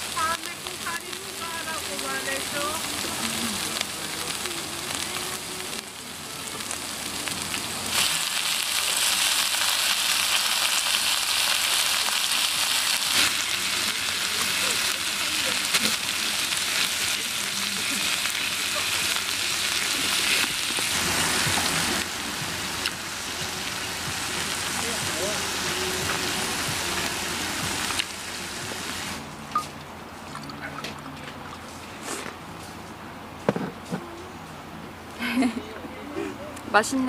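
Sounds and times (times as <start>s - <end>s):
meat sizzling on griddle pan: 0.0s - 29.2s.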